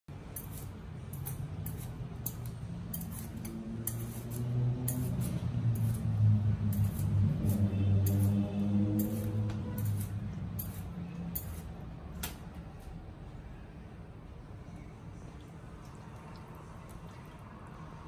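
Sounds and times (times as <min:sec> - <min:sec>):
knife shaving fruit rind: 0:00.2 - 0:11.8.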